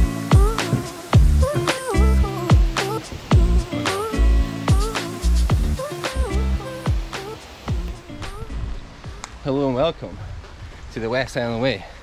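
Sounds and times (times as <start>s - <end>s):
background music with steady beat: 0.0s - 9.4s.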